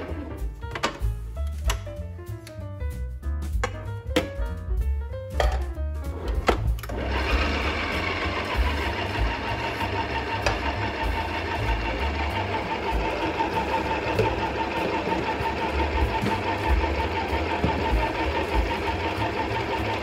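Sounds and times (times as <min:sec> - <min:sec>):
stand mixer motor whining: 0:00.0 - 0:00.4, 0:06.8 - 0:20.0.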